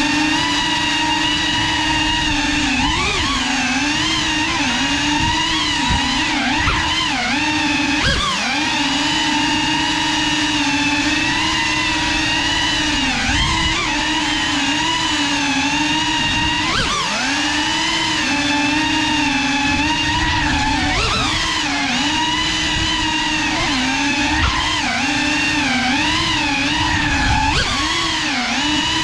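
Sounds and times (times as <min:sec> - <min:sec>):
quadcopter motors whining: 0:00.0 - 0:29.0.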